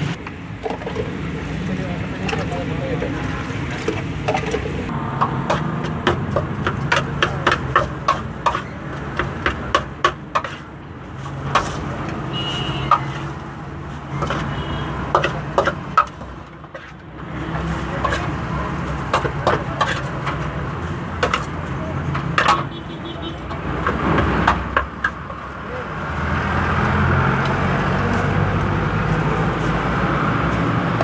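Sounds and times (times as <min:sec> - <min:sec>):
road traffic rumble: 0:00.0 - 0:31.0.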